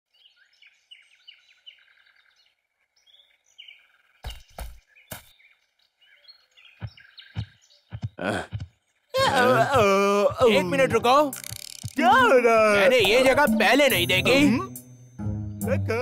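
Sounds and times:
birds chirping and twittering: 0.1 - 9.2.

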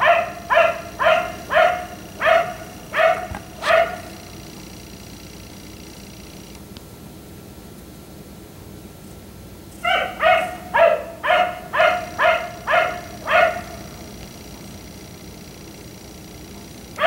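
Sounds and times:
dog barking: 0.0 - 4.3, 9.8 - 14.0.

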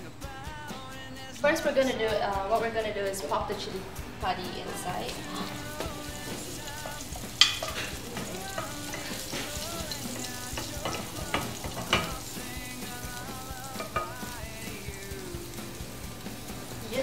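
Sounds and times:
faint background music: 0.0 - 17.0
chili sizzling in oil: 1.2 - 17.0
spatula stirring in pan: 3.8 - 17.0.

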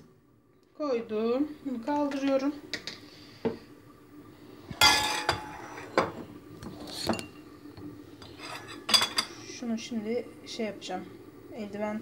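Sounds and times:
dishes and cutlery clinking: 4.8 - 6.2, 6.9 - 7.4, 8.2 - 9.4.

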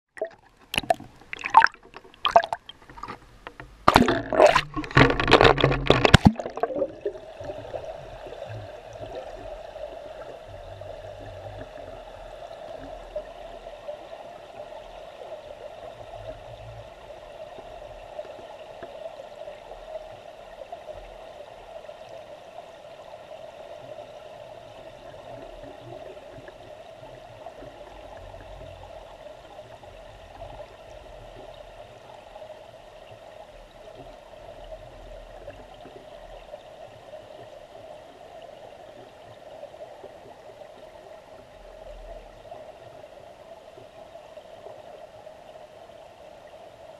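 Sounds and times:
underwater water splashing: 0.1 - 13.6
muffled rush of current over stones: 0.6 - 9.0.

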